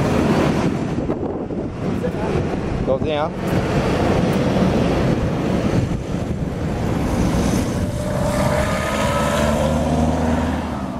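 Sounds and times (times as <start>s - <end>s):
road traffic noise: 0.0s - 10.9s
wind on microphone: 0.0s - 10.9s
passing car engine hum: 3.4s - 10.9s.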